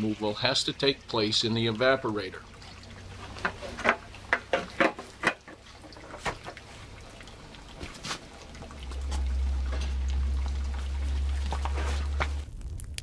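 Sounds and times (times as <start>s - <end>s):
sap trickling: 0.0s - 12.6s
clinks and knocks on pots: 3.2s - 6.6s
steady low rumble: 6.6s - 13.0s.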